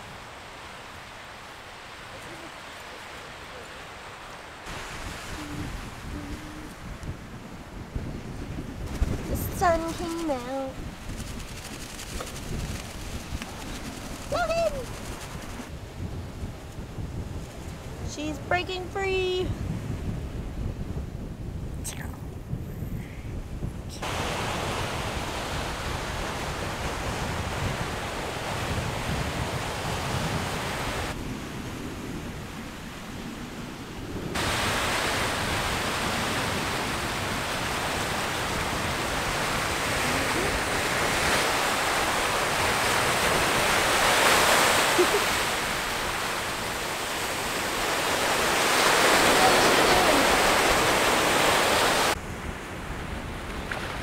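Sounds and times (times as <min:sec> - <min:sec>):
surf breaking on shore: 0:00.0 - 0:15.7, 0:24.0 - 0:54.0
wind on microphone: 0:00.0 - 0:54.0.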